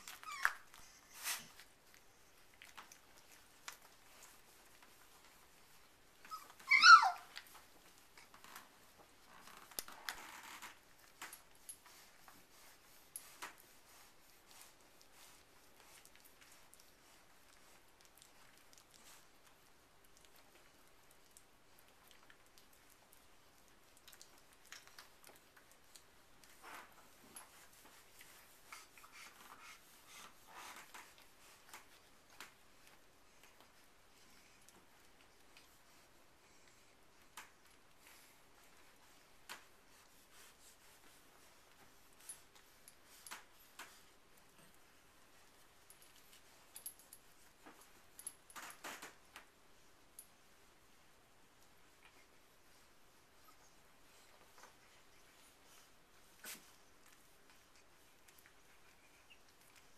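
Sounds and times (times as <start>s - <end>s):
puppy squealing: 0.0s - 0.7s, 6.3s - 7.4s
rustling and small clicks: 0.0s - 36.0s, 40.9s - 50.4s.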